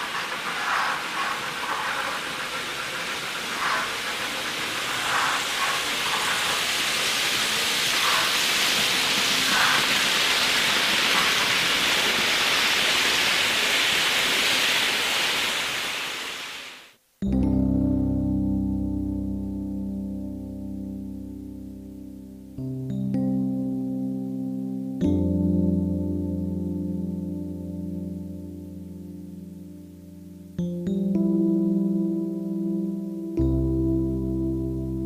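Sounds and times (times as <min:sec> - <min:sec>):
model train wheels hissing: 0:00.0 - 0:17.0
plucked-string music: 0:17.2 - 0:35.0.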